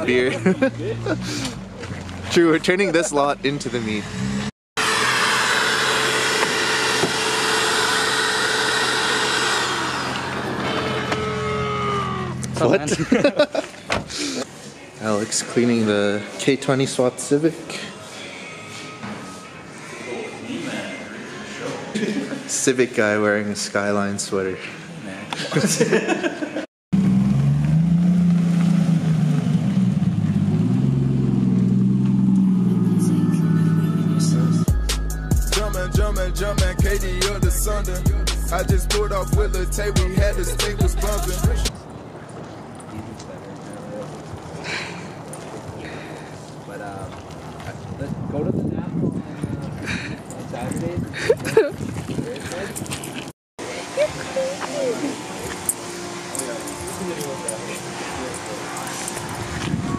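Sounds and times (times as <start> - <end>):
car engine running: 0.0 - 11.5
vacuum cleaner whining: 4.8 - 12.2.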